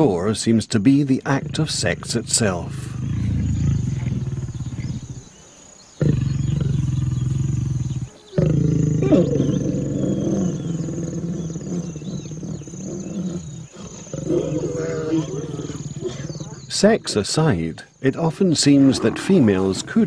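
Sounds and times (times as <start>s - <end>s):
lions growling: 1.2s - 5.4s, 6.0s - 17.2s, 18.2s - 20.0s.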